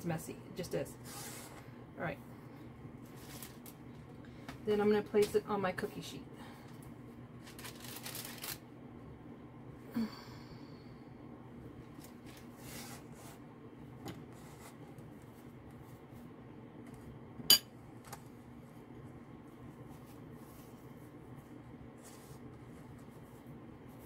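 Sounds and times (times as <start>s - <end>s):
soft rustle: 19.4s - 24.0s.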